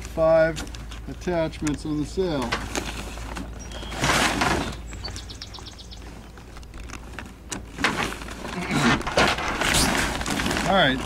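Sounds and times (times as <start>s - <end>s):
sailcloth rustling: 2.4s - 5.0s, 6.0s - 11.0s.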